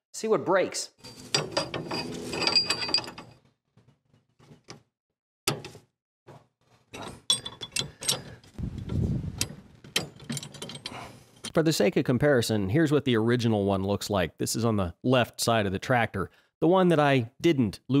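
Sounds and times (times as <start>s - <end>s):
metal clinks and rattles: 1.0s - 3.4s, 6.9s - 8.6s, 9.8s - 11.5s.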